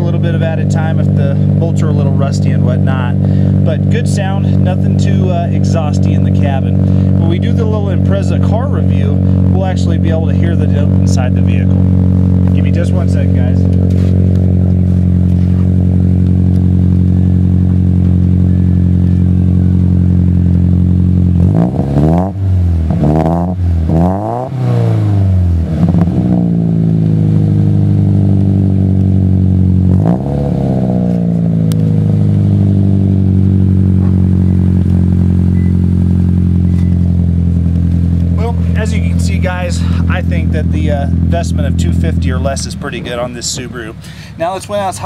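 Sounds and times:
car engine idling: 0.0s - 45.0s
engine throttle blips: 0.0s - 45.0s.

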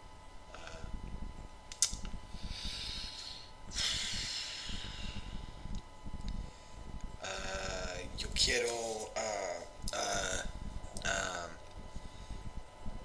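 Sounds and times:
sharp click: 1.7s - 2.2s
man breathing heavily: 2.3s - 5.7s, 9.9s - 12.6s.

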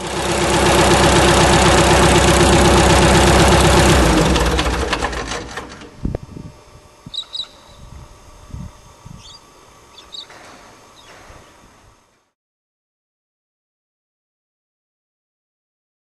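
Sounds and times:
aircraft engine shutting down: 0.0s - 11.4s
bird chirps: 7.1s - 8.0s, 9.2s - 11.6s.

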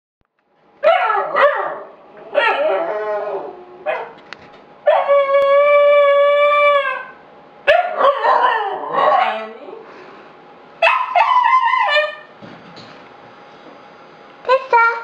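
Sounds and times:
wavering howls: 0.8s - 9.9s, 10.8s - 12.4s
long steady howl: 0.8s - 12.4s.

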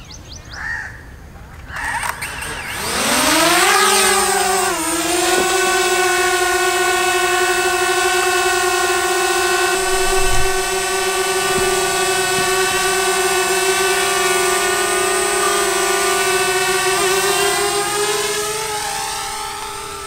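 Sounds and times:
drone propellers whining: 1.6s - 20.0s
low thump: 9.6s - 13.2s.

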